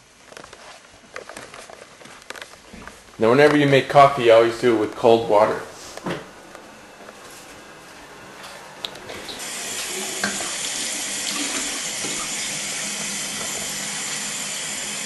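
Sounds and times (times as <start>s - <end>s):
faucet running into a pot: 9.3s - 15.0s.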